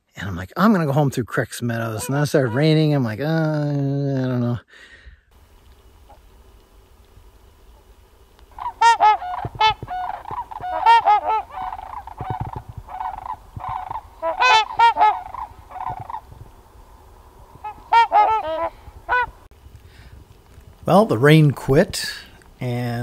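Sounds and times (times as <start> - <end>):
swans honking: 1.9 - 3.1, 8.5 - 16.3, 17.4 - 19.5.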